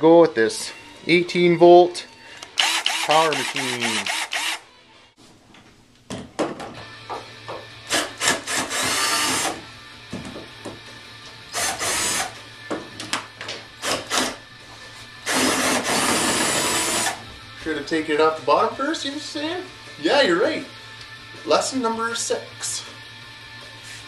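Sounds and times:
cordless drill running: 2.4 - 4.6, 7.9 - 9.6, 11.5 - 12.3, 15.3 - 17.2.

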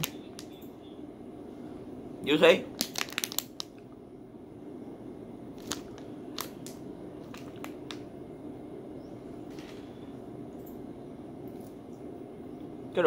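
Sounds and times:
low steady hum: 0.0 - 13.0
plastic wrapper crackling: 2.7 - 3.8, 5.6 - 8.0.

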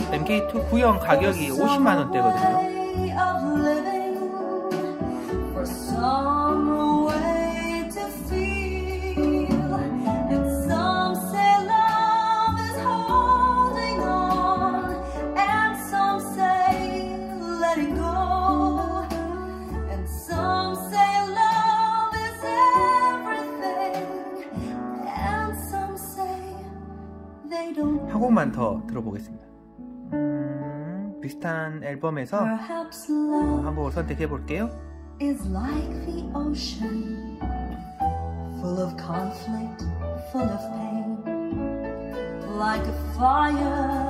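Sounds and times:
acoustic guitar: 0.0 - 44.0
woman singing a slow ballad: 1.3 - 28.1, 32.5 - 33.8, 35.2 - 44.0.

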